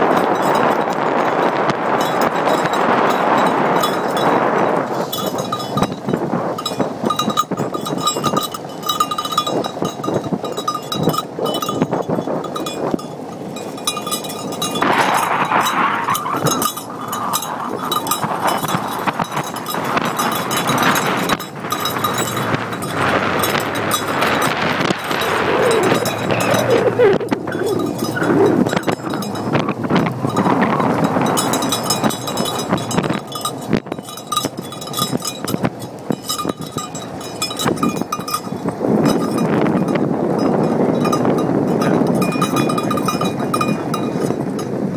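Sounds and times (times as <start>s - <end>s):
atv rattling: 0.0s - 44.9s
metal clinking bell-like: 0.0s - 44.9s.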